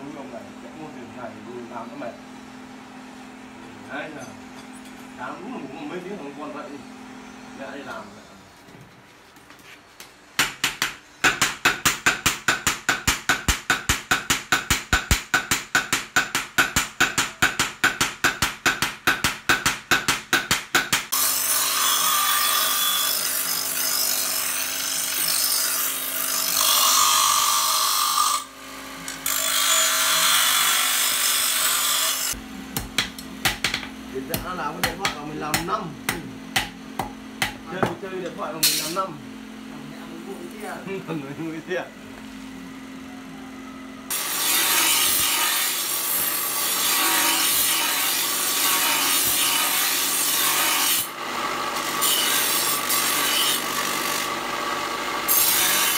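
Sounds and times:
bench grinder grinding blade: 0:20.8 - 0:39.1, 0:44.1 - 0:55.9.

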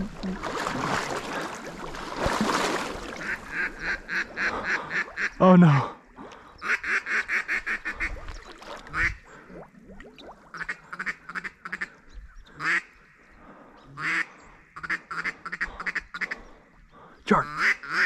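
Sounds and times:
duck quacking: 0:03.2 - 0:05.4, 0:17.4 - 0:18.0.

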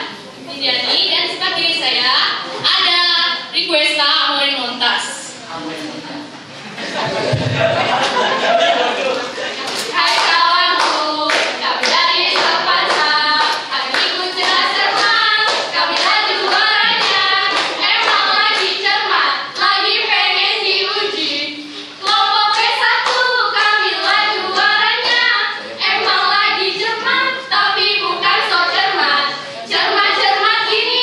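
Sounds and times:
hands clapping: 0:09.1 - 0:19.8, 0:22.0 - 0:25.4
girls singing a cheer: 0:09.8 - 0:31.0.

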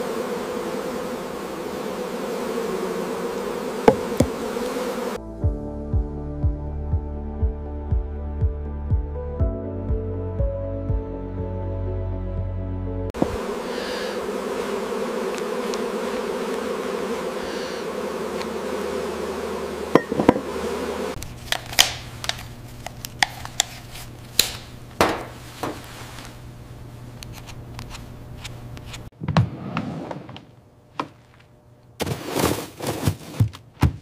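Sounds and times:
honeybees buzzing: 0:00.0 - 0:05.2, 0:13.2 - 0:29.1.

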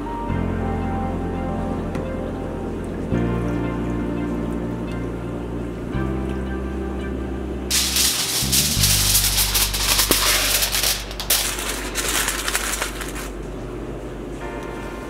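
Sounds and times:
background music: 0:00.0 - 0:11.6
aluminium foil crinkling: 0:07.7 - 0:13.4.

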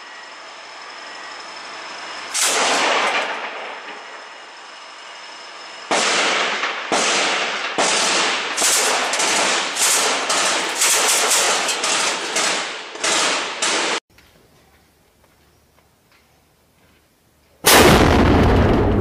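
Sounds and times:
machine gun firing in room: 0:02.4 - 0:03.6, 0:05.9 - 0:14.0.

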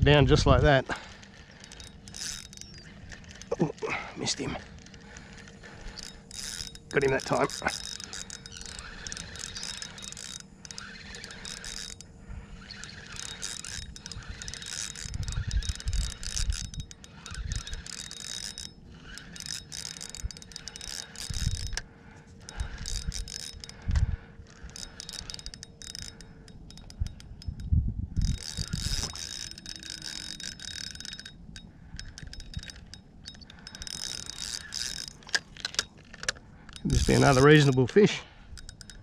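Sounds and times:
fishing reel clicking and whirring: 0:00.0 - 0:39.0.

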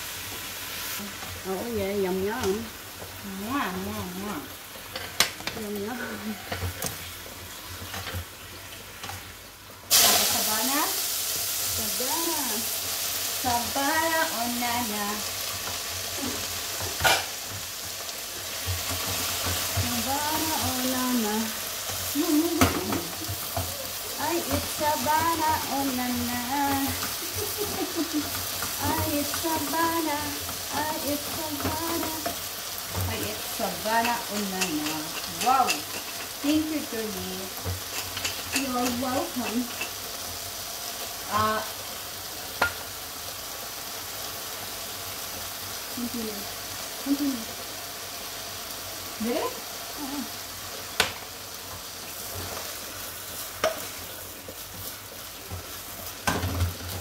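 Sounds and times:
food sizzling in frying pan: 0:00.0 - 0:57.0
spoons scraping in pans: 0:34.0 - 0:36.5, 0:37.8 - 0:40.0.

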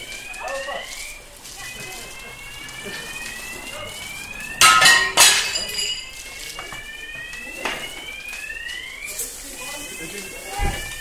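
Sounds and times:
window glass cracking and crashing: 0:00.0 - 0:11.0
alarm in rising sweeps: 0:00.8 - 0:10.5
falling glass shards tinkling: 0:04.6 - 0:06.5.

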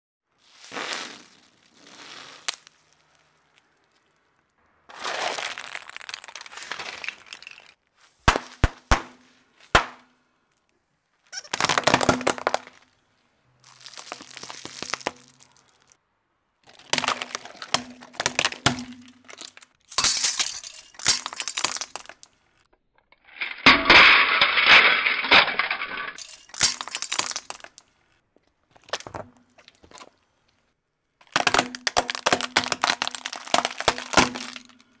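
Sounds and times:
tyre crushing bubble wrap: 0:00.4 - 0:03.2, 0:04.9 - 0:10.0, 0:11.3 - 0:12.9, 0:13.6 - 0:16.0, 0:16.7 - 0:19.7, 0:31.2 - 0:34.9
sharp pops: 0:08.2 - 0:10.1.

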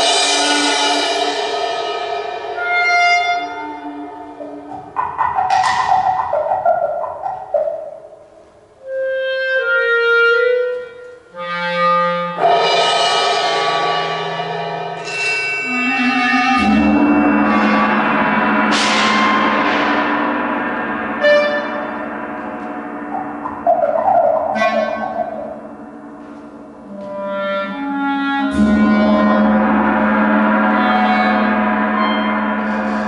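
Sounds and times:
struck metal percussion ringing: 0:12.4 - 0:26.9
clarinet sustained notes: 0:15.6 - 0:18.0, 0:23.1 - 0:33.0
low rumble: 0:16.9 - 0:26.9.

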